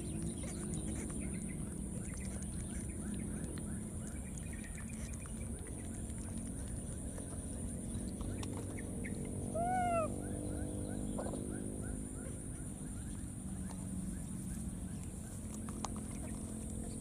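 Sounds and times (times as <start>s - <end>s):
baby monkey cooing: 9.5s - 10.2s.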